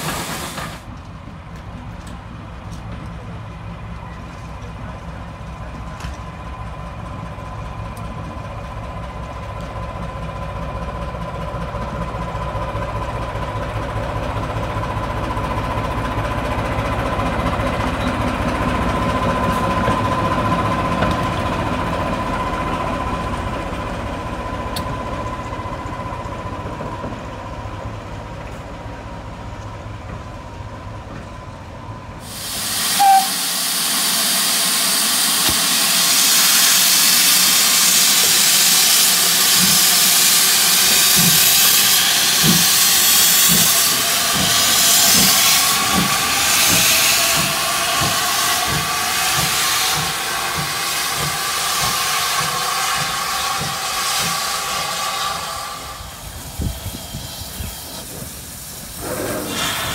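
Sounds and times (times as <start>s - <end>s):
steam locomotive hiss: 0.0s - 0.9s, 32.1s - 59.9s
diesel locomotive engine rumble: 0.0s - 59.9s.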